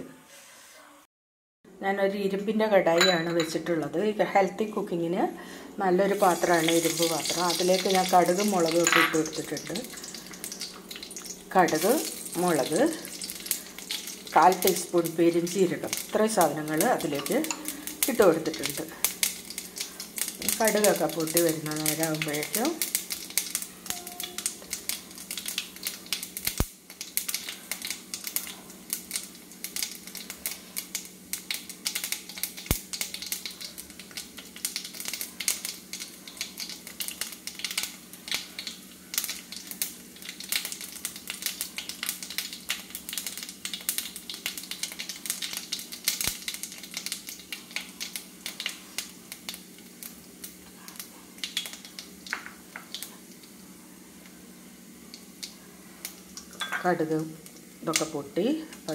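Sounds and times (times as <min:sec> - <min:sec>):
seeds popping in hot oil: 0:06.1 - 0:53.6, 0:54.2 - 0:58.9.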